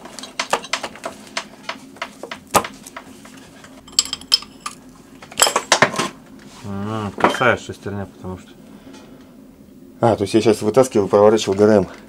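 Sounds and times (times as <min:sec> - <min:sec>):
metal tools clinking and knocking: 0:03.8 - 0:04.8.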